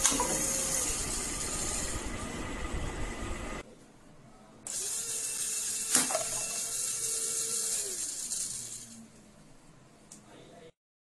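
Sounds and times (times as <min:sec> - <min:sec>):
small electric motor whirring: 0:00.0 - 0:03.6, 0:04.7 - 0:09.1.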